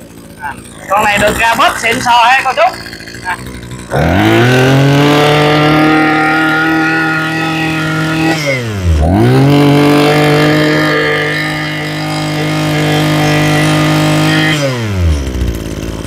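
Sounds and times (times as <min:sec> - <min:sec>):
brush cutter engine revving: 0:00.0 - 0:16.0.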